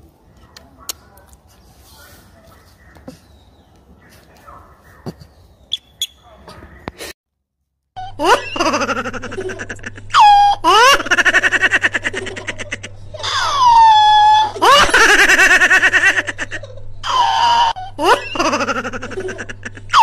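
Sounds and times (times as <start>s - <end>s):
high-pitched laughter: 8.0s - 20.0s.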